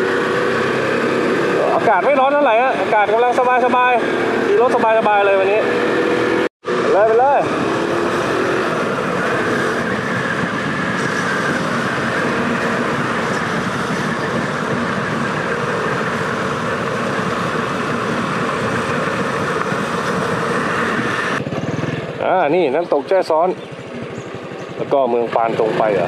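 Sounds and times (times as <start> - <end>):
motorcycle engine drone: 0.0 - 26.0
wind noise: 7.4 - 21.8.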